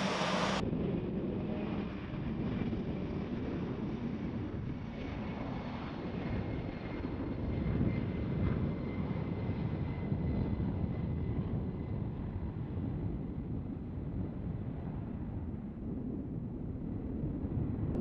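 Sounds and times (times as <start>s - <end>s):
jet engine whine: 0.0s - 18.0s
jet engines deep rumble: 0.0s - 18.0s.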